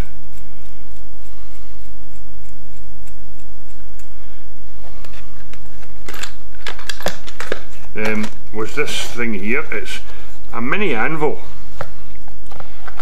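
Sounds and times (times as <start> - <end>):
faint regular ticking: 0.0 - 7.1
steady low hum: 0.0 - 13.0.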